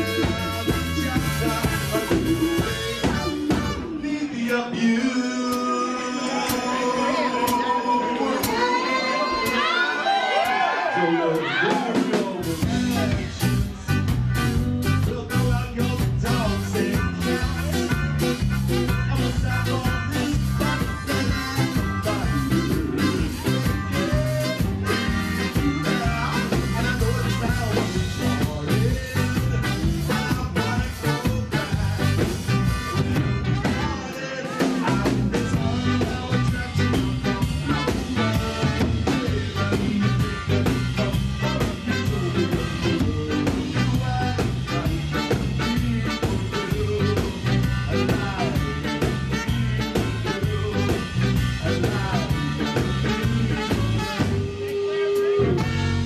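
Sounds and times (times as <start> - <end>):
live ska band playing: 0.0 - 56.0
person singing: 0.0 - 56.0.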